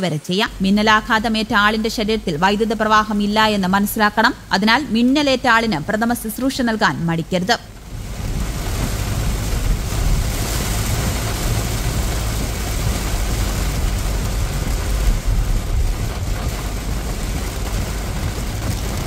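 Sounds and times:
heavy rain on a car: 0:00.5 - 0:19.0
engine and tyre rumble: 0:07.3 - 0:19.0.

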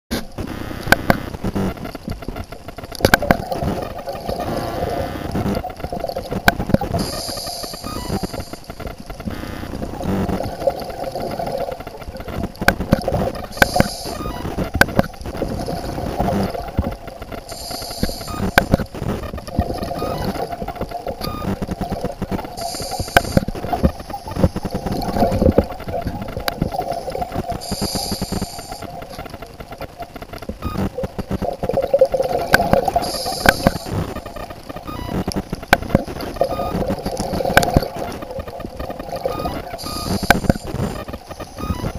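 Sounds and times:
exhaled bubbles rumbling: 0:02.0 - 0:41.9
regulator hissing inhale: 0:07.0 - 0:08.5, 0:13.6 - 0:14.2, 0:17.5 - 0:18.7, 0:22.6 - 0:23.4, 0:27.6 - 0:28.8, 0:33.0 - 0:33.9.

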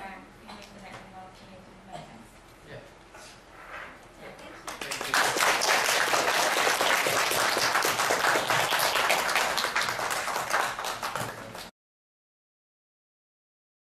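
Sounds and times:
audience applauding: 0:04.6 - 0:11.7.

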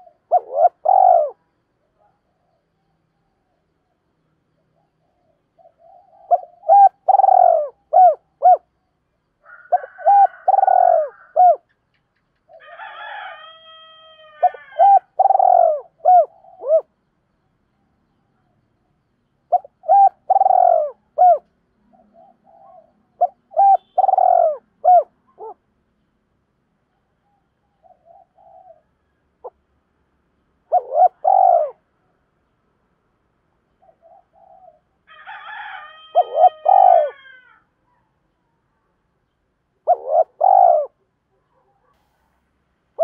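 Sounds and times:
dove cooing: 0:00.0 - 0:02.6, 0:04.8 - 0:08.7, 0:09.5 - 0:11.7, 0:13.9 - 0:16.9, 0:19.5 - 0:25.6, 0:27.8 - 0:29.6, 0:30.6 - 0:31.8, 0:33.8 - 0:37.6, 0:39.8 - 0:41.9
buzzy bird call: 0:22.5 - 0:25.6, 0:36.1 - 0:37.2.

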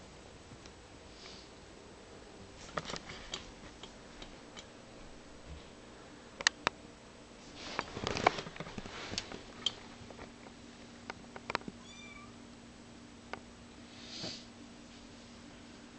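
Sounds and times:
kitten mewing: 0:11.8 - 0:12.4.

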